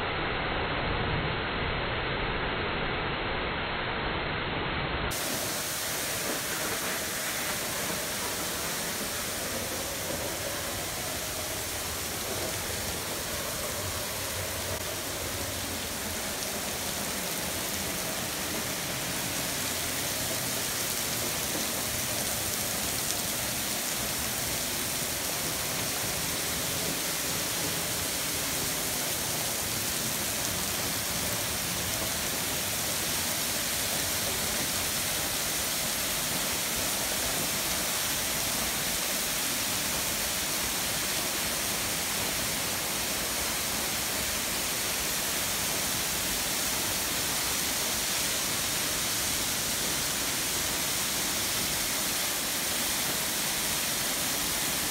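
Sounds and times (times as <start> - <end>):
waterfall rushing: 5.1 - 54.9.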